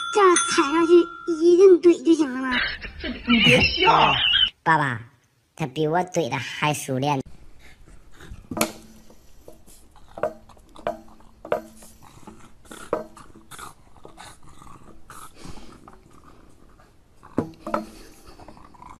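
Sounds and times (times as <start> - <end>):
stick knocking on metal gate: 10.2 - 11.9.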